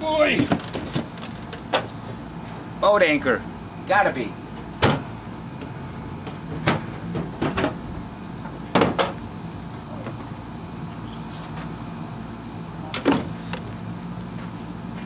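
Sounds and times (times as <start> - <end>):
steady low hum: 0.0 - 15.0
faint insect chirring: 7.8 - 15.0.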